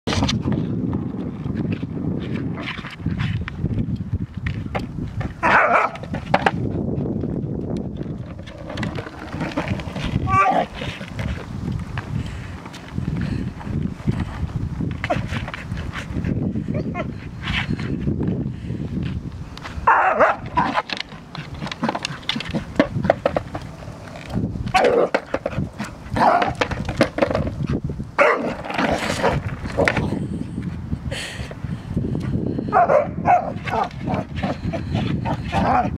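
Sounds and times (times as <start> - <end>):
skateboard wheels rolling on asphalt: 0.1 - 35.9
puppy barking: 5.4 - 6.0, 19.9 - 20.7, 28.2 - 28.5, 32.7 - 33.9.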